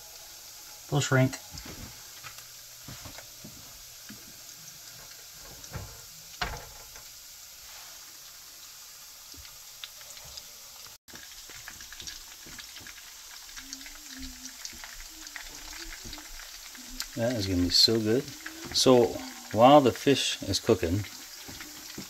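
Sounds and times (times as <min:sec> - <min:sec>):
fish sizzling in oil: 0:00.0 - 0:22.0
oil popping: 0:01.5 - 0:07.2, 0:11.1 - 0:22.0.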